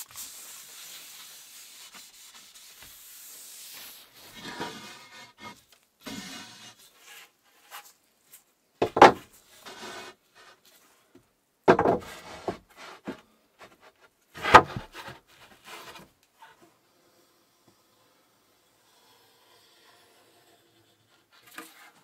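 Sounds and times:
plastic mold scraping on floor: 4.3 - 7.2.

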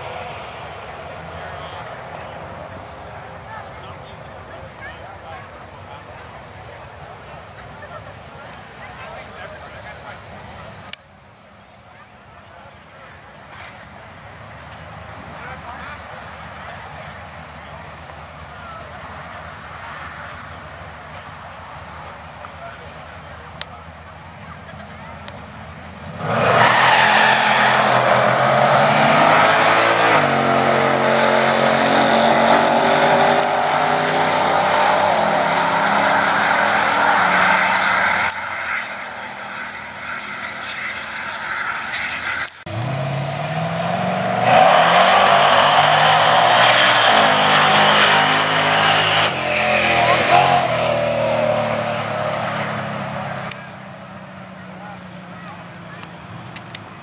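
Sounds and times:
drag cars launching: 13.0 - 57.0
truck engine climbing through gears: 13.4 - 57.0.

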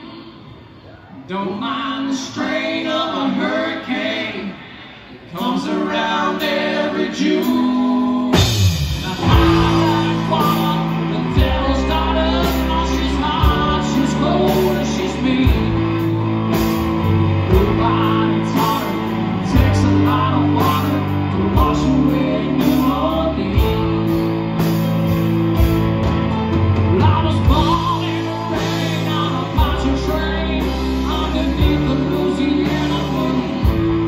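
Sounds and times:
country-rock band playing: 5.4 - 34.0
drums striking hard: 8.2 - 34.0.

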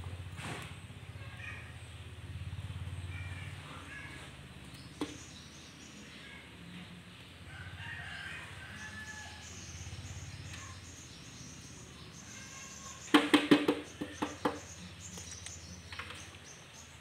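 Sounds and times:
basket knocking against plastic pot: 13.1 - 14.7.

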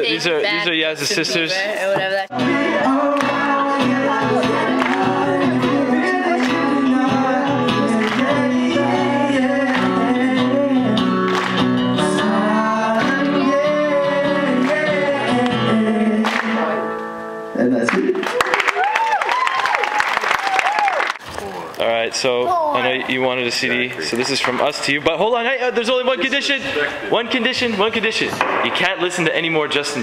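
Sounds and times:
acoustic guitar: 0.5 - 18.2
man singing into microphone: 2.3 - 11.3, 12.0 - 17.0.

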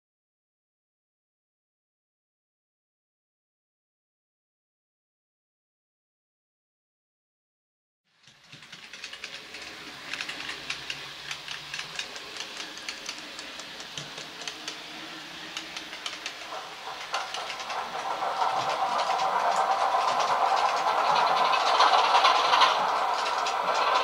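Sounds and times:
model train wheels clicking: 8.1 - 24.0
hissing hum: 8.2 - 24.0.

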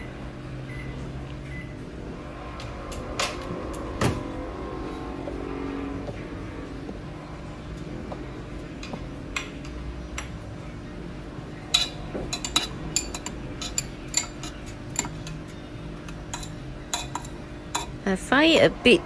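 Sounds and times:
metal spoon clinking in bowl: 11.7 - 18.0.

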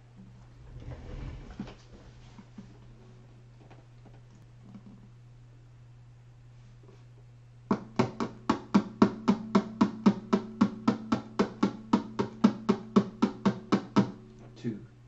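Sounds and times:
acoustic guitar strumming: 7.7 - 15.0.

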